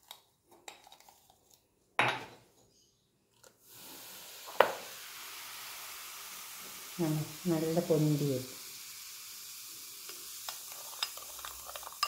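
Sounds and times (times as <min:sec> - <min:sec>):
fizzing hiss of foaming: 0:03.6 - 0:12.0.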